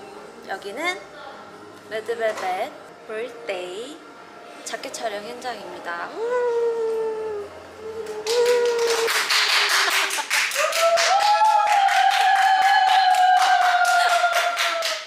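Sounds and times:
fast hand clapping: 8.0s - 15.0s.

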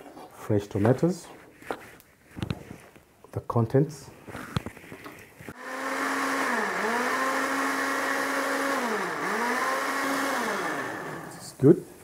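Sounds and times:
electric blender running: 5.6s - 11.4s.

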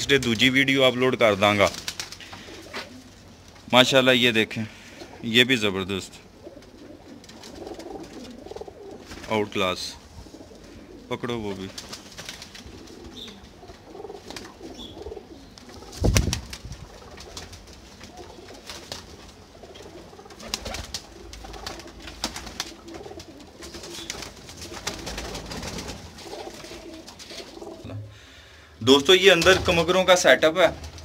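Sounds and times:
pigeons cooing: 1.9s - 3.5s, 6.2s - 9.2s, 10.0s - 28.5s.

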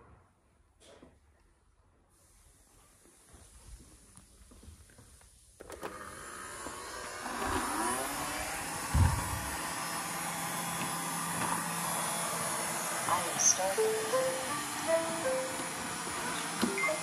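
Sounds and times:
robot vacuum cleaners whirring: 5.6s - 17.0s.

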